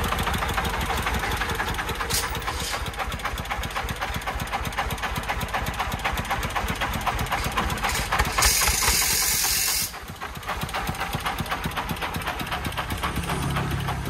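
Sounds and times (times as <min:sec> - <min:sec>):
diesel engine idling: 0:00.0 - 0:14.0
loud hiss of air: 0:07.8 - 0:10.1.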